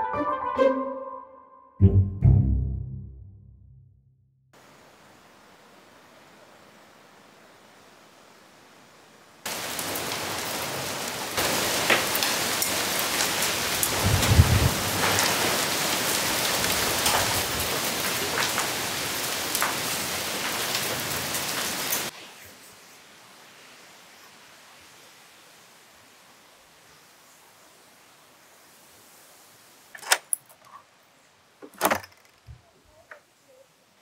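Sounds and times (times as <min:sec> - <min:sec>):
heavy rain pouring: 0:04.6 - 0:30.0.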